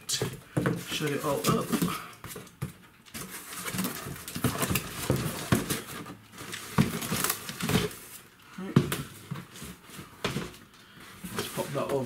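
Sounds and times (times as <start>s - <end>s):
cardboard box knocks and scrapes: 3.7s - 6.1s.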